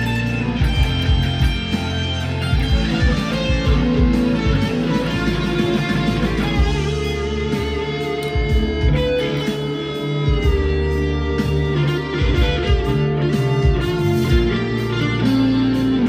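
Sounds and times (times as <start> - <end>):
distorted electric guitar riff: 0.0 - 16.0.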